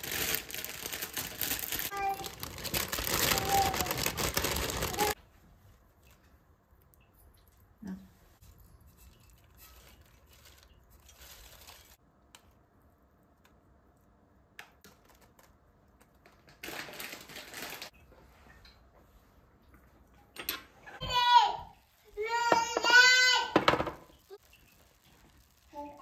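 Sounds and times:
salad leaves rustling: 0.0s - 5.2s, 9.0s - 12.0s, 24.3s - 26.0s.

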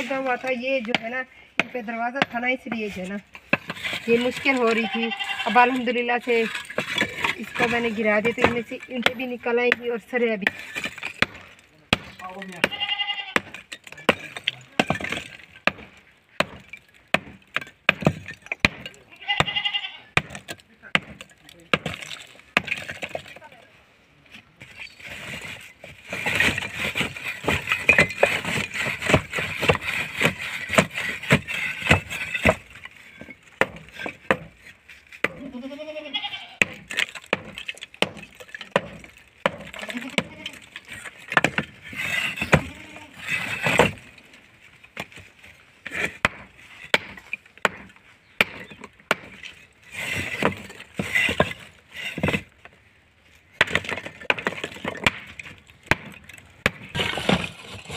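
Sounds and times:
farm animal bleating: 4.5s - 5.8s, 12.5s - 13.4s, 19.1s - 20.2s, 35.3s - 36.6s, 39.8s - 40.7s, 42.5s - 43.2s
hammer striking concrete: 13.4s - 19.5s, 36.6s - 40.3s.

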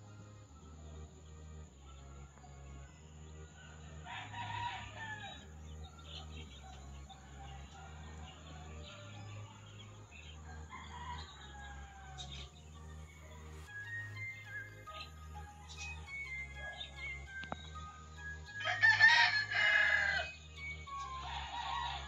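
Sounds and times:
music with low bass notes: 0.0s - 21.6s
faint birds calling: 0.0s - 22.0s
rooster crowing: 3.6s - 9.5s, 10.1s - 12.6s, 18.6s - 22.0s.

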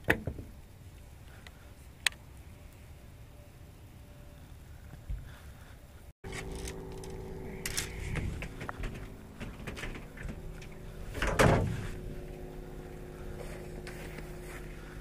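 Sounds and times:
steady low hum: 0.0s - 15.0s
knocks and rustling on deck: 8.1s - 12.0s
loud rustling thump: 11.1s - 12.1s.

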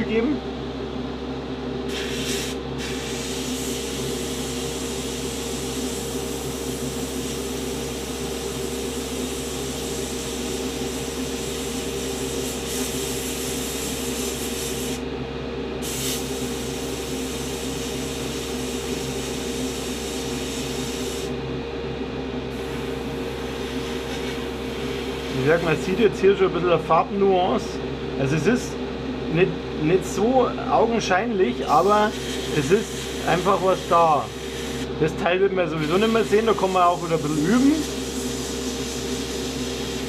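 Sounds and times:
airbrush spraying hiss: 1.9s - 6.0s, 11.3s - 15.0s, 15.8s - 21.3s, 22.6s - 25.4s, 31.7s - 34.9s, 35.8s - 40.0s.

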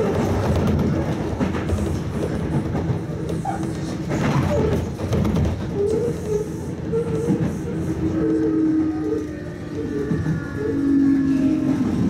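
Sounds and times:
train wheels rumbling on rails: 0.0s - 12.0s
traction motor whine: 8.0s - 12.0s.

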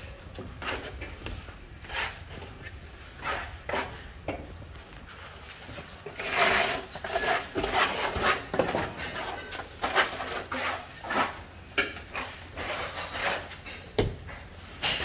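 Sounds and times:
trowel scraping mortar: 1.8s - 2.4s, 6.0s - 13.9s.

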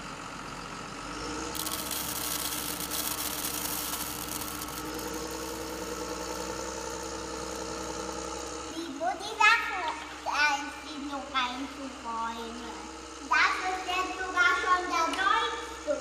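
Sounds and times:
engine humming: 0.0s - 16.0s
dry pasta pouring onto plastic: 1.6s - 6.5s.

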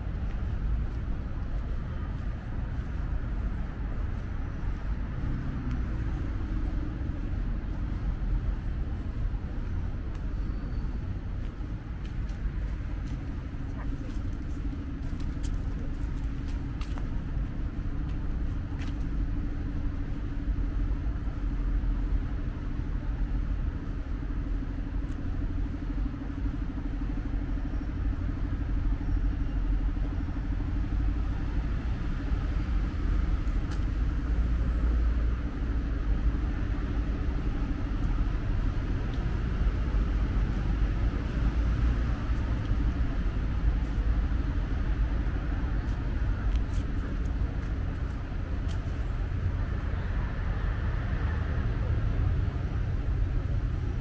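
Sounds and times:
road traffic rumble: 0.0s - 54.0s.

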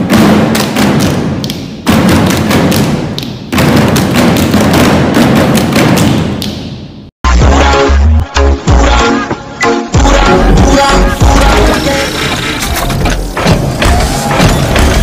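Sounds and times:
pop music with heavy bass: 7.2s - 15.0s.

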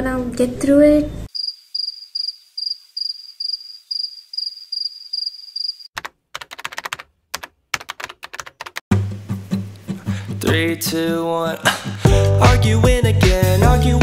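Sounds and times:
cricket chirp sound effect: 1.3s - 5.9s
typewriter-style keyboard typing: 6.0s - 8.8s.

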